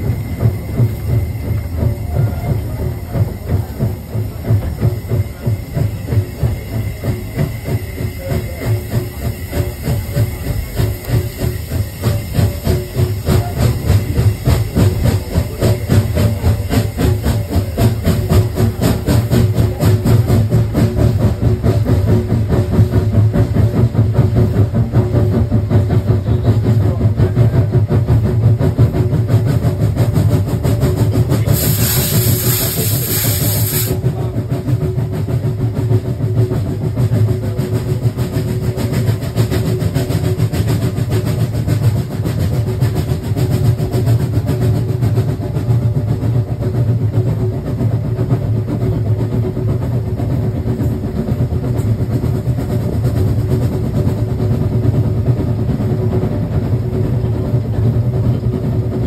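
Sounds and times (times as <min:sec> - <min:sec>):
loud steam hiss: 0:00.0 - 0:45.6
train carriage rumbling on track: 0:00.0 - 0:59.0.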